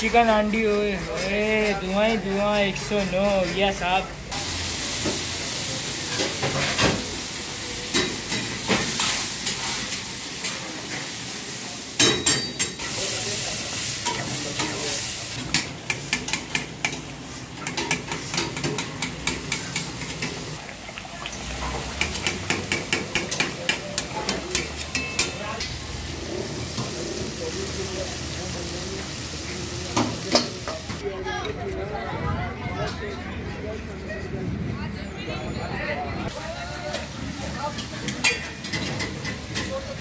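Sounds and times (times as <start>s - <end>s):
food sizzling and bubbling: 4.1s - 31.1s, 36.3s - 40.0s.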